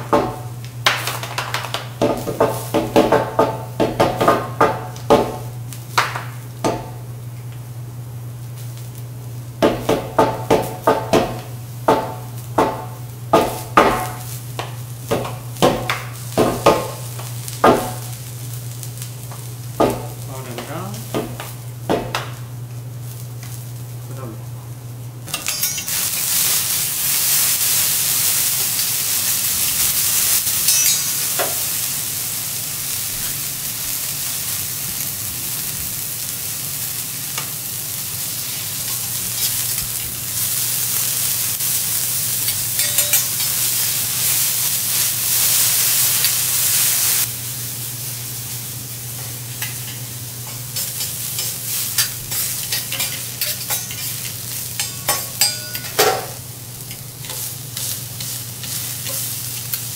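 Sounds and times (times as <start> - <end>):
bean sprouts sizzling on griddle: 0.0 - 24.4, 25.0 - 59.9
spatula stirring on griddle: 25.3 - 31.7, 42.2 - 47.0, 49.2 - 59.9
metal shakers clacking: 42.5 - 43.6.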